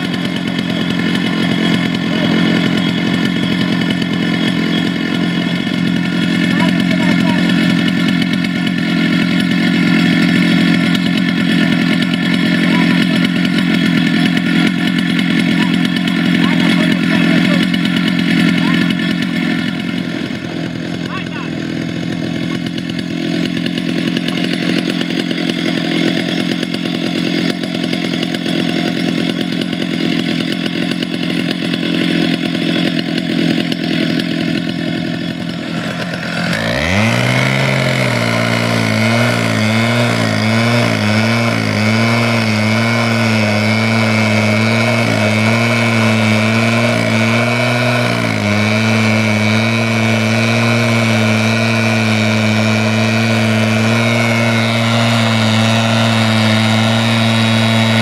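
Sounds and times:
abrasive disc grinding steel: 0:00.0 - 0:58.0
cut-off saw engine running: 0:00.0 - 0:58.0.

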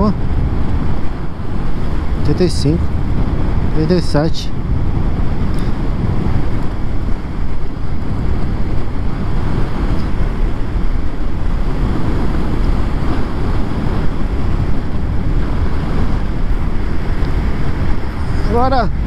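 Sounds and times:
road noise: 0:00.0 - 0:19.0
wind noise on microphone: 0:00.0 - 0:19.0.

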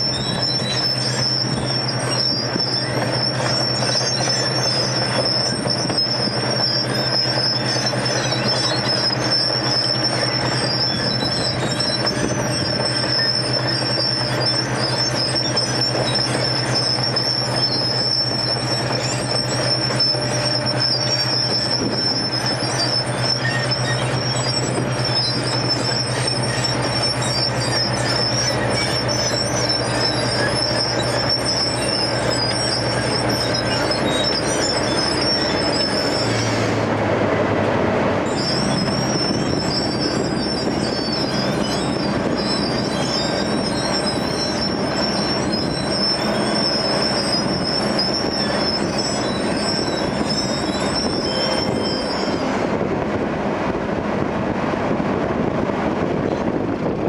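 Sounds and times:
constant high-pitched squeal: 0:00.0 - 0:37.0, 0:38.2 - 0:57.0
heavy machine engine running: 0:00.0 - 0:57.0.

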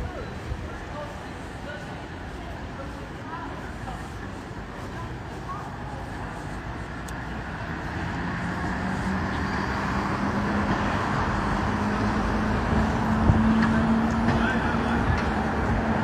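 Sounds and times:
city street traffic: 0:00.0 - 0:16.0
approaching vehicle engine hum: 0:03.7 - 0:16.0.

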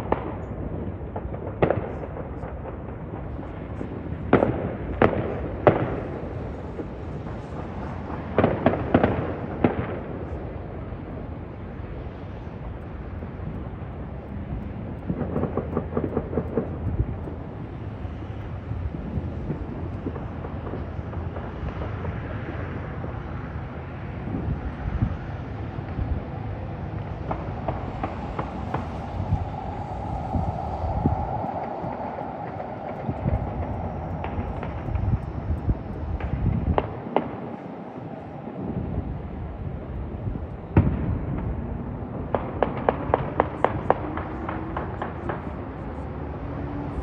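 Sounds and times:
fireworks bangs and crackling: 0:00.0 - 0:47.0
steady low rumble: 0:00.0 - 0:47.0.

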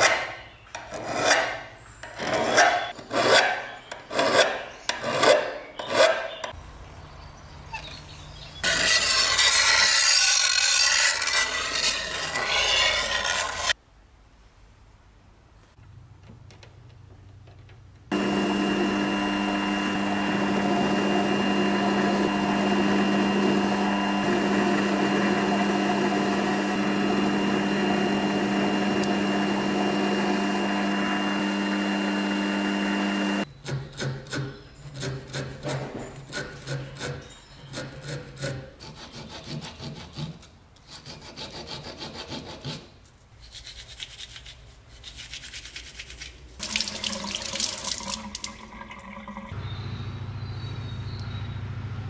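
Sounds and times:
electric power tool humming: 0:18.1 - 0:33.5.

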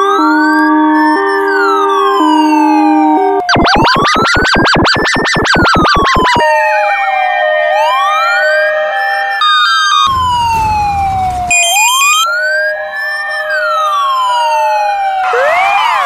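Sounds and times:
siren wail: 0:00.0 - 0:16.0
high stepped electronic tones: 0:03.5 - 0:06.4, 0:10.0 - 0:12.4
alternating two-note tone: 0:09.9 - 0:13.8.

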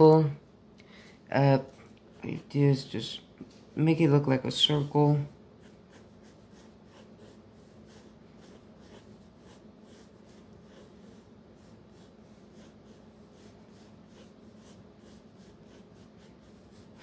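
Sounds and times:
low steady hum: 0:00.0 - 0:17.0
pencil scratching on paper: 0:04.6 - 0:17.0.

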